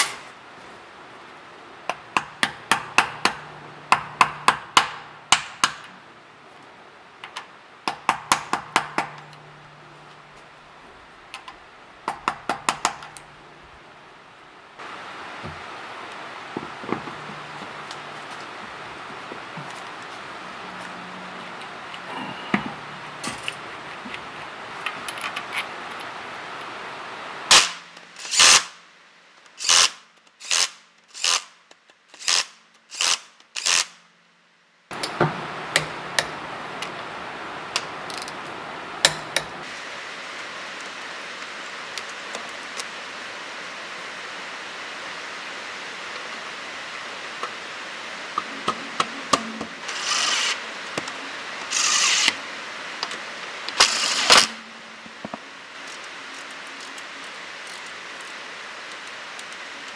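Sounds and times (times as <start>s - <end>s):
impact wrench bursts: 1.9s - 6.0s, 27.5s - 28.8s, 29.6s - 34.0s, 49.3s - 50.6s, 51.7s - 52.4s, 53.8s - 54.9s.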